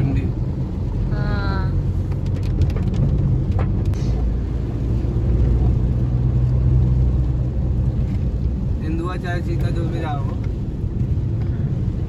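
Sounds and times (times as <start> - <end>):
road vehicle rumble: 0.0 - 12.0.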